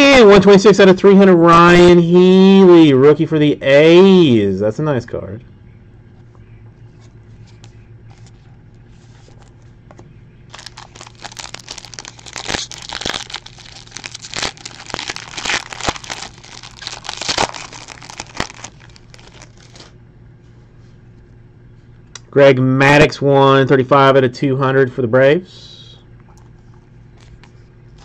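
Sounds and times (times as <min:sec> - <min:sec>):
foil wrapper tearing and crinkling: 0:10.5 - 0:20.0.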